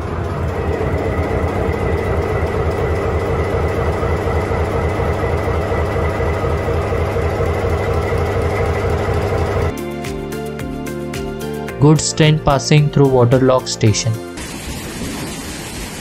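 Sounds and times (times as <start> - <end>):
diesel locomotive engine running: 0.0 - 9.8
high engine whine: 0.0 - 9.8.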